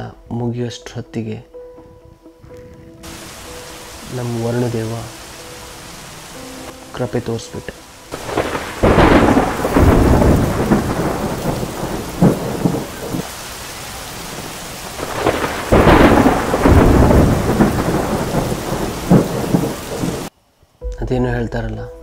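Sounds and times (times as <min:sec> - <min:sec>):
heavy rain pouring: 0:03.0 - 0:20.3.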